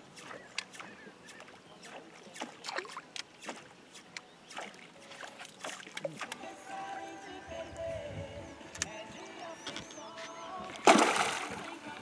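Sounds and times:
water splashes and plops: 0.0 - 6.4, 10.7 - 12.0.

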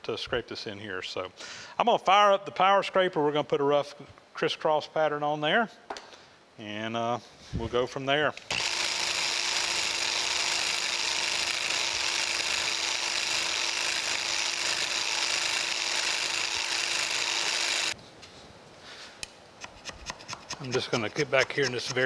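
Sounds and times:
power scraper scraping metal: 8.5 - 18.0.

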